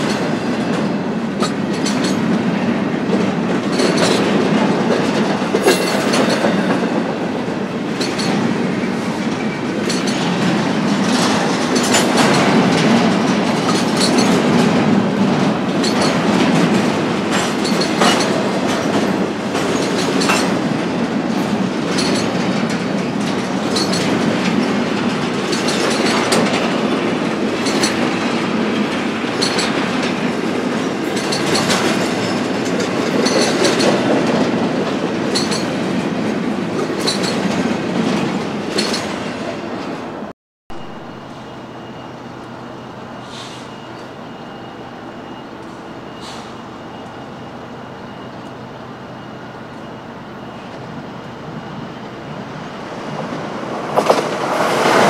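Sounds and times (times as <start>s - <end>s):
train wheels clicking over rail joints: 0.0s - 39.5s, 52.7s - 55.0s
freight train rumble: 0.0s - 55.0s.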